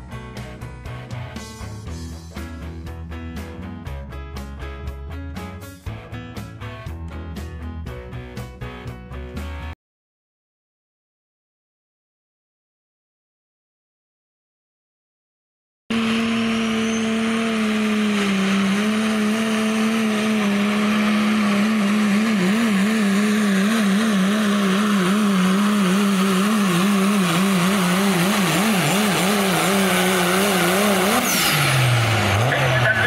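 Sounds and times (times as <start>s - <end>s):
diesel truck engine running hard: 15.9s - 33.0s.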